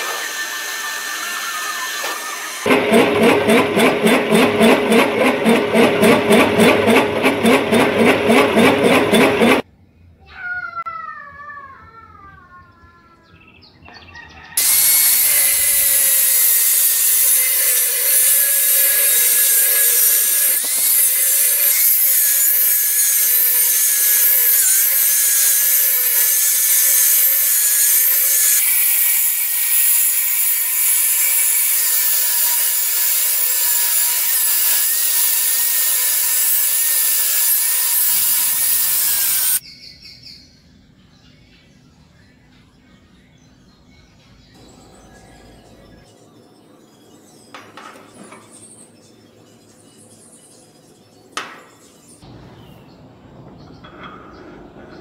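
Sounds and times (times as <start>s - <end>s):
angle grinder cutting steel: 0.0s - 9.6s, 14.6s - 39.6s
hole cutter chattering in steel: 2.6s - 9.6s, 14.6s - 39.6s.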